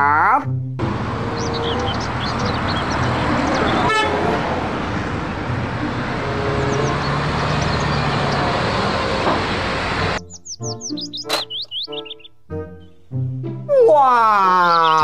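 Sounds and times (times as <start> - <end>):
road noise: 0.6 - 12.5
bus engine hum: 0.8 - 11.5.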